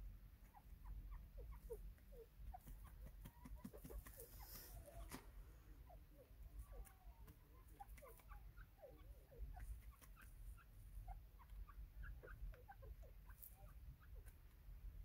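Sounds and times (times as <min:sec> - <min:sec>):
bird chirps and clucks: 0:00.0 - 0:15.0.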